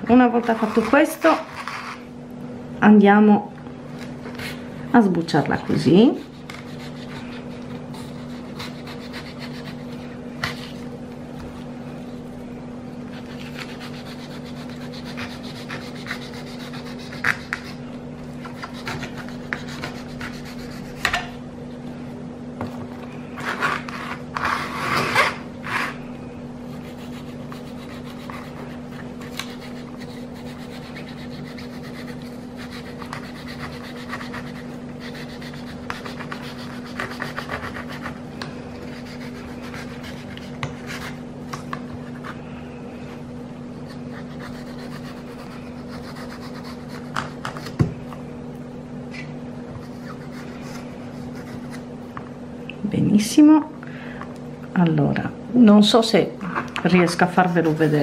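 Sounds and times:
steady low hum: 0.0s - 58.0s
knife scraping on cutting board: 0.3s - 2.1s, 23.4s - 26.0s.

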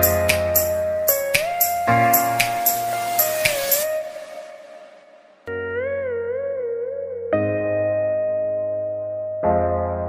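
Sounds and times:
sliding melody over light beat: 0.0s - 5.6s.

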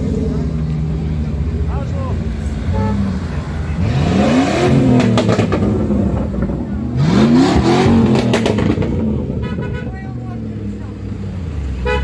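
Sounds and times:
suv engines driving past: 0.0s - 12.0s
engines revving up: 3.1s - 9.4s.

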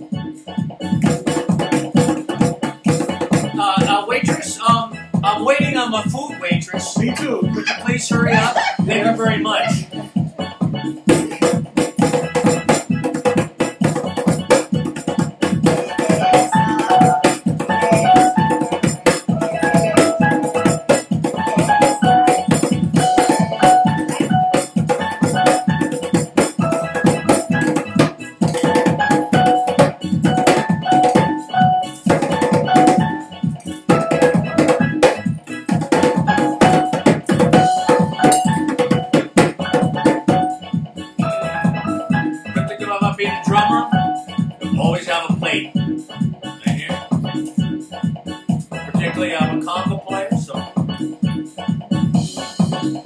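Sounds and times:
bright repeating melody: 0.0s - 53.0s
fast dense drumming: 1.0s - 4.6s, 11.1s - 31.3s, 33.9s - 40.3s.

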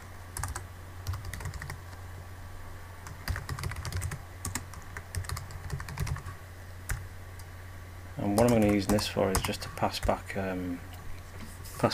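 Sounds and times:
steady low hum: 0.0s - 11.9s
typing on computer keyboard: 0.4s - 1.8s, 3.0s - 7.0s, 8.4s - 10.2s.

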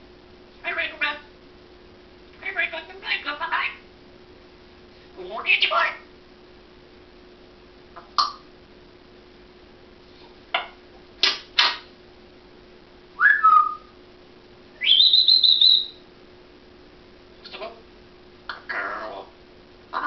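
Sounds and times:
parrot whistling: 13.2s - 13.9s, 14.8s - 16.0s.

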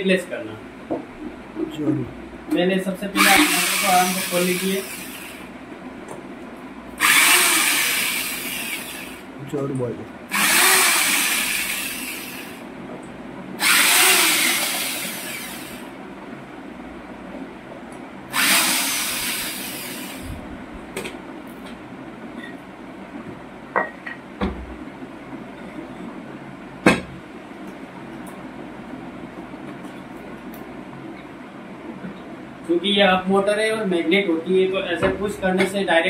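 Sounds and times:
cordless drill spinning screws: 3.2s - 5.4s, 7.0s - 9.2s, 10.3s - 12.6s, 13.6s - 15.9s, 18.3s - 20.2s.

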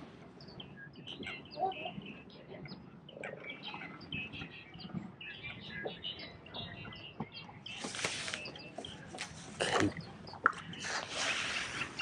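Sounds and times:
small birds chirping: 0.3s - 12.0s
rustling noise: 7.7s - 9.6s, 10.6s - 12.0s.

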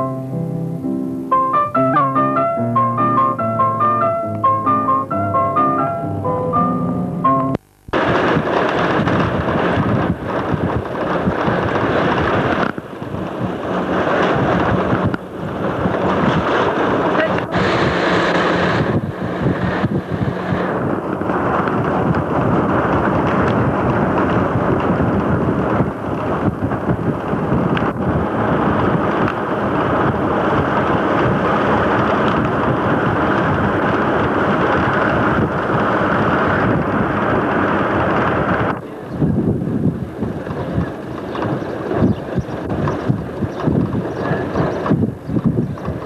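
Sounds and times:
wind buffeting microphone: 7.9s - 46.0s
car engine running: 12.7s - 26.9s.

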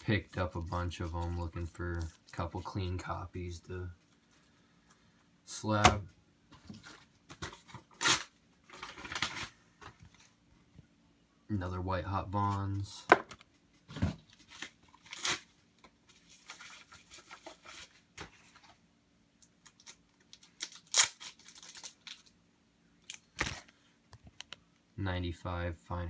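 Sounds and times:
plastic packaging crinkling: 19.6s - 22.4s.

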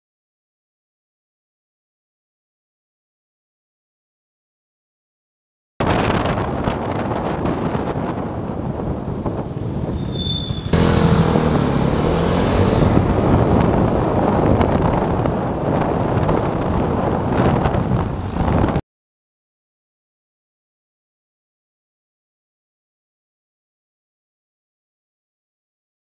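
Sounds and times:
wind rush: 5.8s - 18.8s
high squeak: 9.9s - 10.8s
scooter engine: 10.5s - 14.8s.

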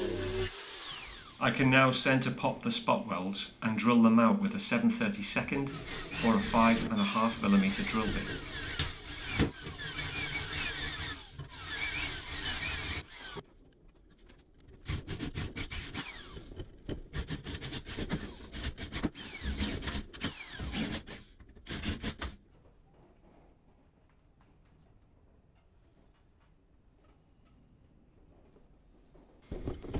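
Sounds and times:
cordless drill drilling metal: 0.0s - 2.0s, 5.4s - 13.4s, 15.1s - 22.3s.

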